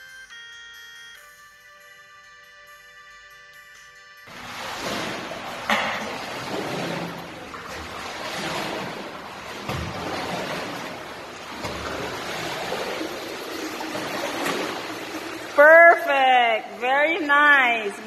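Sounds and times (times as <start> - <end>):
child swimming splashing: 4.3 - 16.8.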